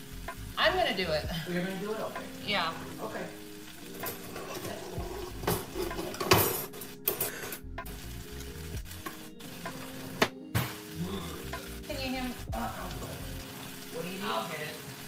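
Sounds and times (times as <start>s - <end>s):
food sizzling in a pot: 0.0s - 15.0s
soft music: 0.0s - 15.0s
utensils and dishes clattering: 3.9s - 7.6s.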